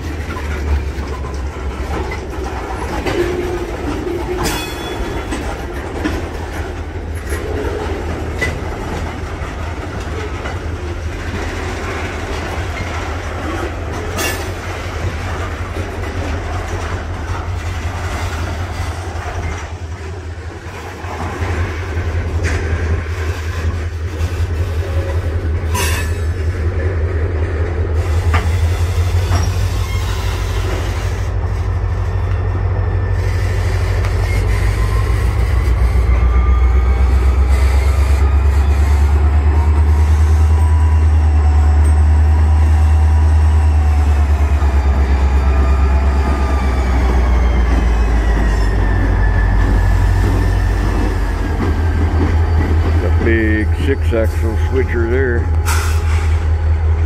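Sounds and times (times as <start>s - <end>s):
diesel locomotive engine droning: 0.0s - 57.0s
train wheels clicking over rail joints: 0.0s - 57.0s
metal squeals and clanks: 0.2s - 6.0s, 28.0s - 43.0s, 44.6s - 56.9s.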